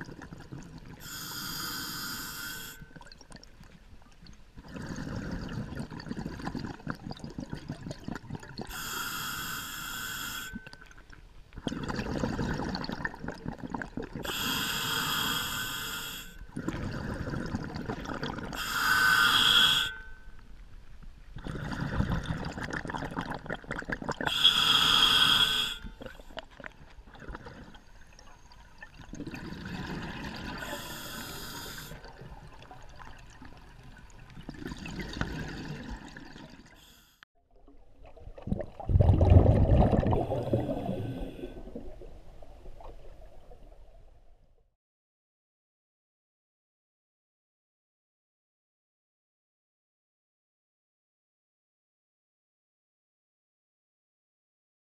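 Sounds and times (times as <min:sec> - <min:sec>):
exhaled bubbles gurgling: 0:00.0 - 0:01.0, 0:04.6 - 0:08.8, 0:11.6 - 0:14.4, 0:16.5 - 0:18.6, 0:21.4 - 0:24.8, 0:26.0 - 0:36.8, 0:37.6 - 0:44.2
regulator hissing inhalations: 0:01.0 - 0:02.9, 0:08.7 - 0:10.6, 0:14.3 - 0:16.4, 0:18.6 - 0:20.0, 0:24.3 - 0:26.0, 0:30.6 - 0:32.0.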